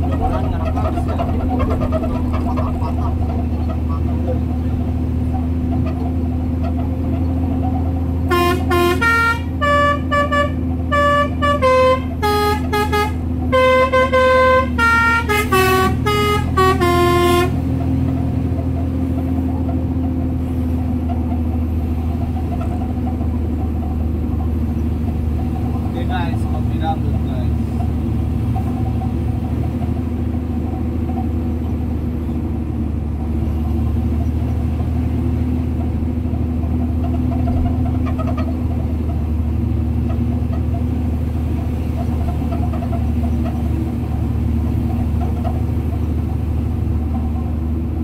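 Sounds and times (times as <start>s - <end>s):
truck engine drone: 0.0s - 48.0s
musical air horn tune: 8.3s - 17.6s.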